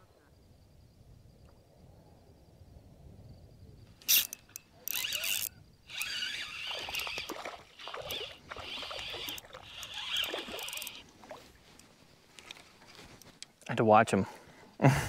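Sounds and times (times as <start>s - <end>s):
fishing reel whirring: 4.0s - 11.1s.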